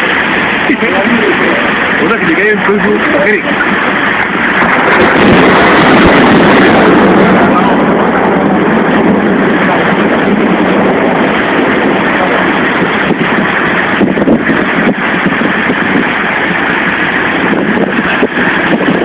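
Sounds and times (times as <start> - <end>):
heavy rain: 0.0 - 19.0
wind: 0.0 - 19.0.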